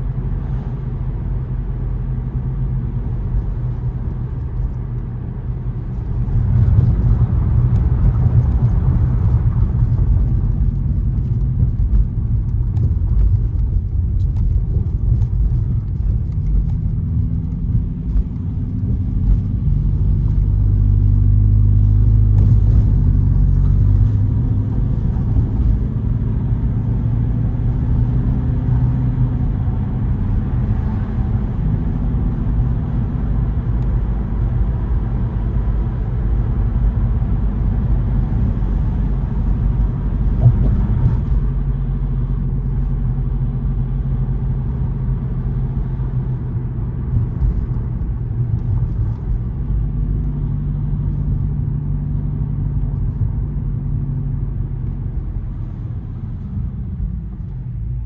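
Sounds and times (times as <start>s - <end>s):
low road and engine rumble: 0.0s - 58.0s.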